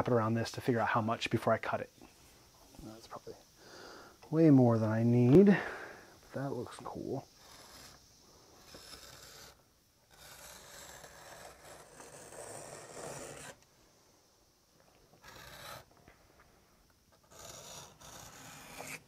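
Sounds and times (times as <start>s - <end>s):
knife cutting leather: 7.4s - 8.0s, 8.6s - 13.6s, 15.2s - 15.9s, 17.1s - 19.0s.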